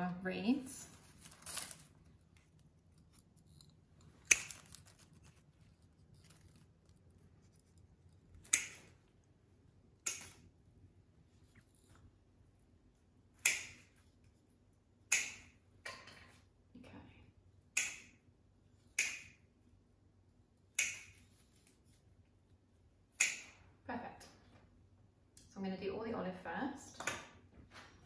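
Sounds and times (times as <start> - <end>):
snips cutting stems: 8.4 - 8.9, 10.0 - 10.4, 20.8 - 21.2.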